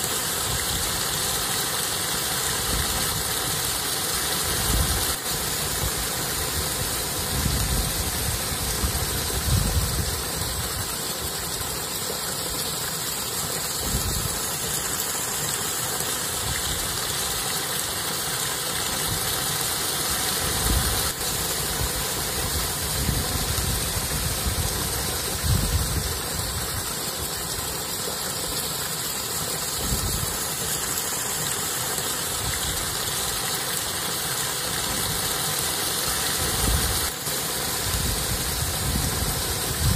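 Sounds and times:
wind buffeting microphone: 7.3s - 10.2s, 22.9s - 26.2s.

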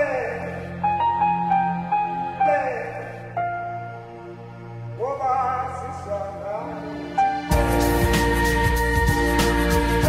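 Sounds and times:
slow melody of high notes: 0.5s - 5.1s.

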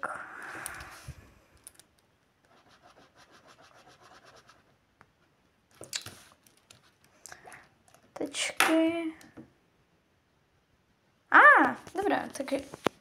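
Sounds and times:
ballpoint pen scratching paper: 2.4s - 4.7s.

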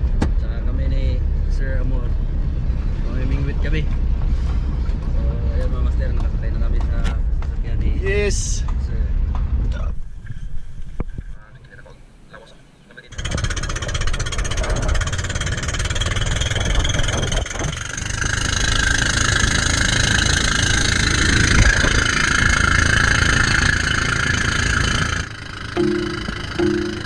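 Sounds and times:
high engine whine: 24.0s - 27.0s.

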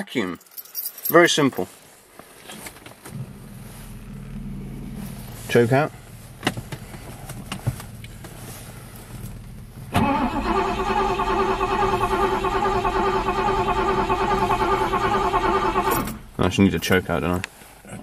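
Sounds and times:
engine cranking on starter: 3.1s - 16.4s
starter motor clicks: 9.9s - 16.3s.

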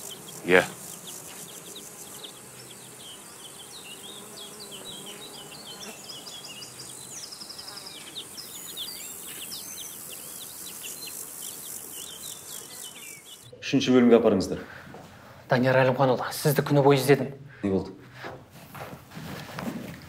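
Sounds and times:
bird trill: 0.0s - 13.5s
insect buzz: 0.0s - 13.5s
small birds chirping: 0.0s - 13.6s.

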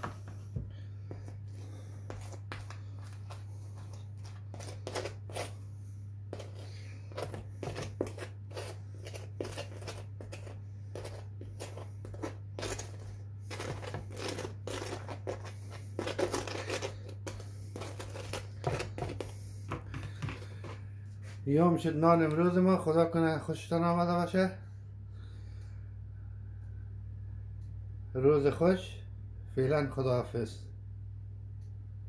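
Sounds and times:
steady low hum: 0.0s - 32.0s
knife scraping bread crust: 1.6s - 5.6s, 6.3s - 20.8s.

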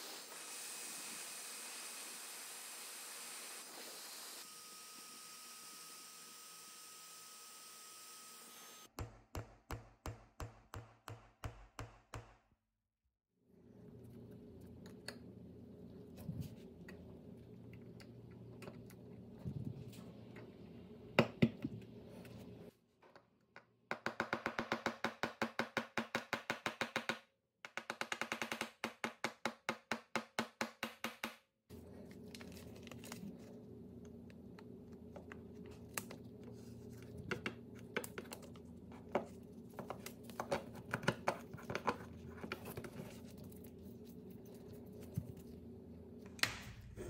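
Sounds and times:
low room hum: 13.5s - 22.7s, 31.7s - 47.0s.

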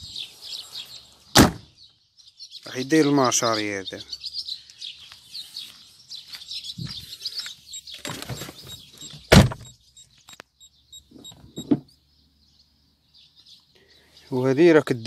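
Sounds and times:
birds chirping: 0.0s - 15.0s
car door slamming: 1.4s - 1.7s, 9.2s - 9.7s
short high beeps: 9.0s - 11.7s.

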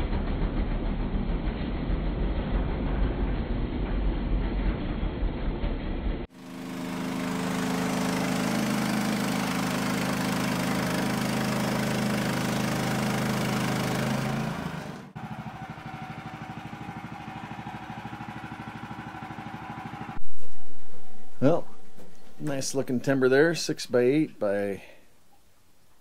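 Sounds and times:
engine idling with rapid pulsing: 6.2s - 20.2s
gas engine running: 6.2s - 24.4s.

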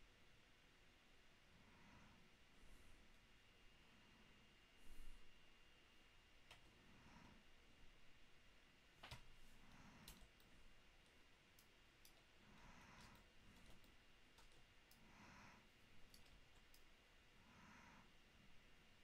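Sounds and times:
mouse and keyboard clicks: 9.0s - 9.3s.

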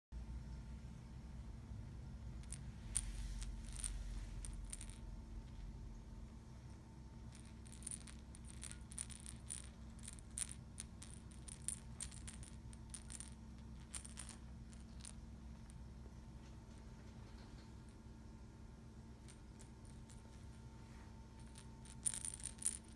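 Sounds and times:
toy clicking and rattling: 7.3s - 15.2s, 21.4s - 22.9s.

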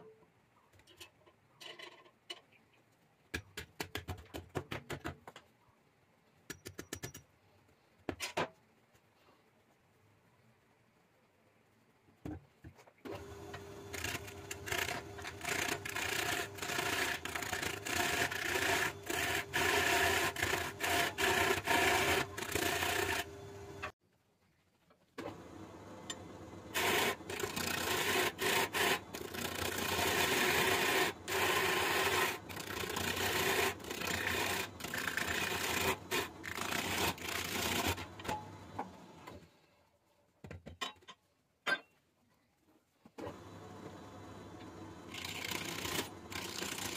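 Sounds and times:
gouge scraping wood: 14.0s - 23.2s.

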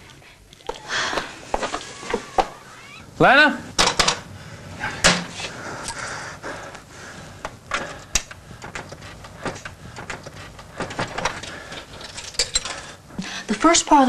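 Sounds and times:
household knocks and clicks: 3.8s - 4.2s, 7.4s - 12.8s.

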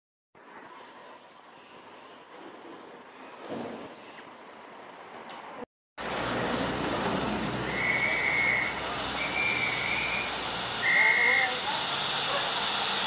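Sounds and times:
steam hissing from locomotive: 0.4s - 4.0s, 6.0s - 13.0s
high steam whistle blasts: 6.0s - 13.0s.

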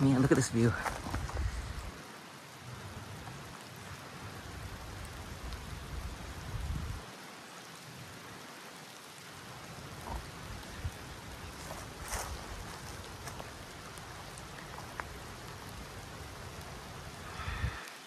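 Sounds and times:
steady rain falling: 0.0s - 18.0s
low gusty rumble: 0.8s - 2.0s, 2.7s - 7.0s.

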